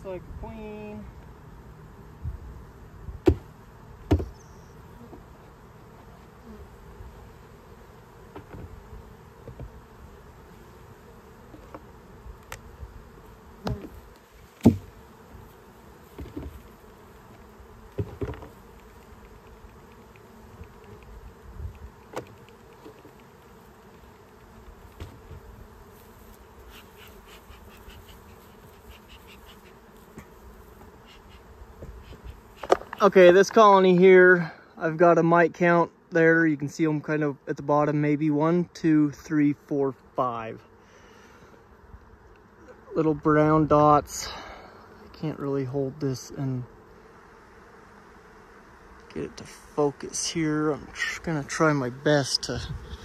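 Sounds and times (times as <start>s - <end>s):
bees buzzing: 0.0s - 53.0s
knocks and clatters of hive parts: 3.2s - 4.4s, 8.3s - 8.8s, 9.4s - 9.8s, 11.5s - 12.7s, 13.6s - 15.0s, 16.1s - 23.5s, 24.2s - 25.5s, 31.8s - 33.6s.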